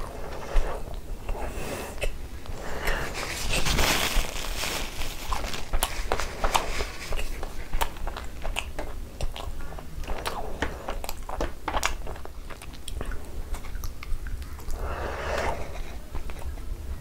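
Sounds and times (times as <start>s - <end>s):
person chewing: 0.0s - 17.0s.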